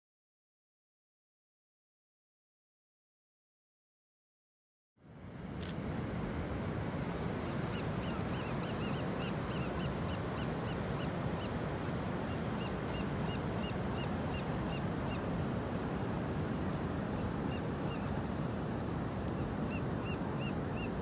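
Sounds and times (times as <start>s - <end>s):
wind: 5.0s - 21.0s
surf: 5.8s - 21.0s.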